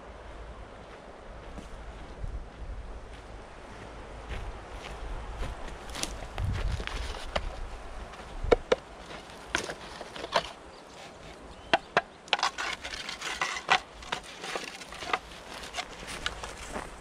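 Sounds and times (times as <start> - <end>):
footsteps on pine needles: 3.7 - 11.4, 12.4 - 17.0
clay bricks clacking together: 8.5 - 16.4.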